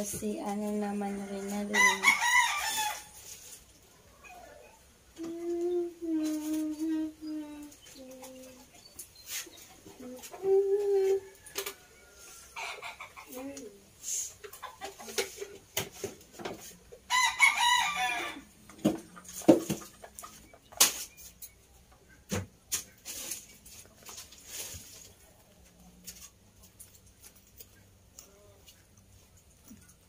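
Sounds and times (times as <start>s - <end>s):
rooster crowing: 1.0s - 3.2s, 11.1s - 12.9s, 17.1s - 18.5s.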